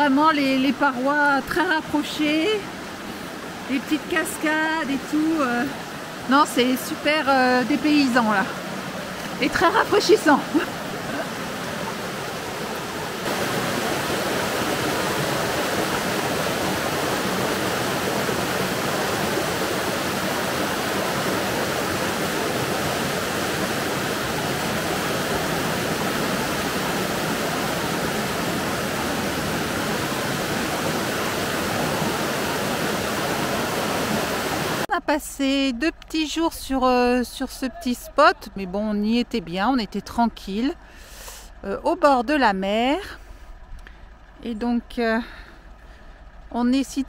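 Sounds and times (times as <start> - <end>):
water rushing over rocks: 0.0 - 34.9.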